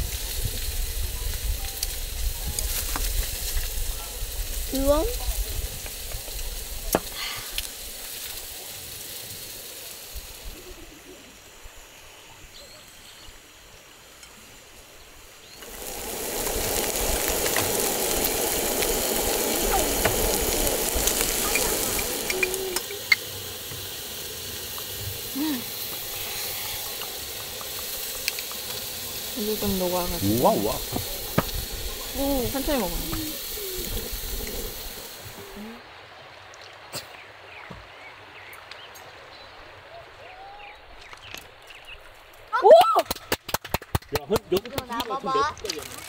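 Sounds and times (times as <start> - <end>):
food sizzling in a pan: 0.0 - 35.8.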